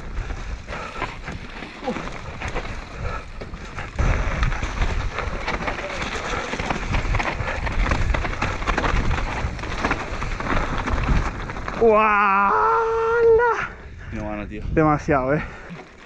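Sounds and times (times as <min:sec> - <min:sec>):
tyres crunching over gravel: 0:00.0 - 0:12.4
bike rattling: 0:00.0 - 0:13.5, 0:15.0 - 0:16.0.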